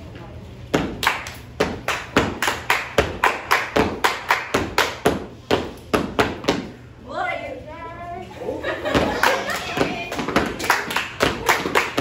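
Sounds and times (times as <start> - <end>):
children clapping and body slapping: 0.9 - 5.2, 8.9 - 12.0.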